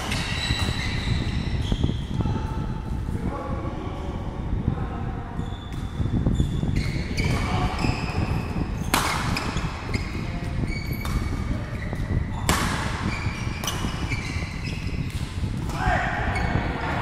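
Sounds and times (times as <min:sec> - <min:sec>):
shoes squeaking on court floor: 0:00.0 - 0:02.2, 0:05.4 - 0:15.7
rackets hitting shuttlecock: 0:08.8 - 0:09.7, 0:10.9 - 0:11.5, 0:12.3 - 0:14.2.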